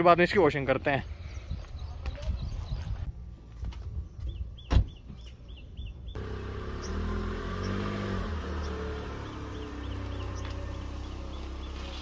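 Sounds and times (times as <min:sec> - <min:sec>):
bird chirping: 0:04.0 - 0:12.0
car engine running: 0:06.2 - 0:12.0.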